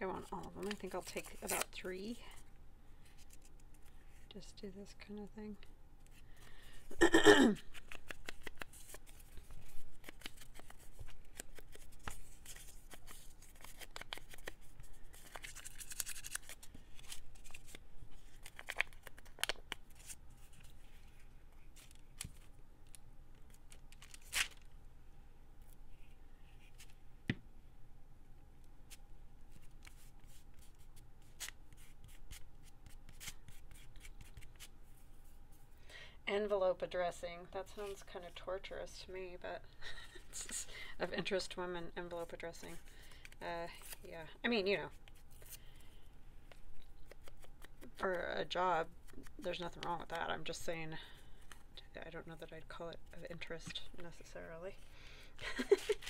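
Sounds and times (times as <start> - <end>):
paper rustling and crinkling: 7.7 - 24.7, 55.6 - 56.0
paper tearing: 23.9 - 24.6.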